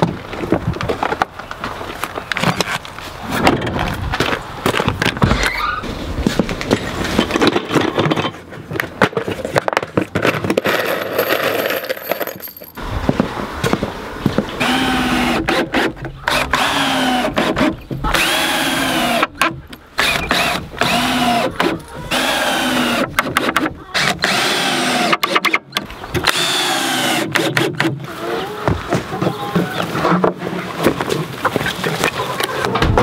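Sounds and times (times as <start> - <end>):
cordless drill driving screws: 14.6 - 25.6, 26.2 - 27.9.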